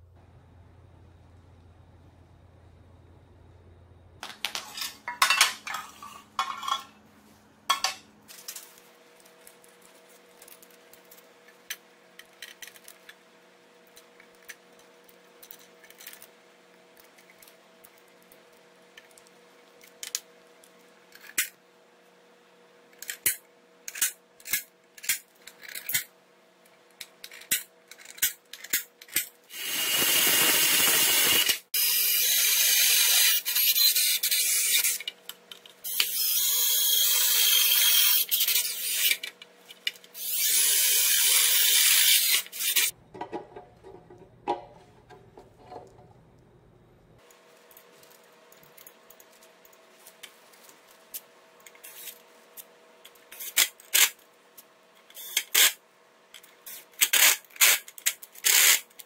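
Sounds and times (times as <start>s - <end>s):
cordless drill boring metal: 29.5s - 35.0s, 35.9s - 39.2s, 40.2s - 42.9s.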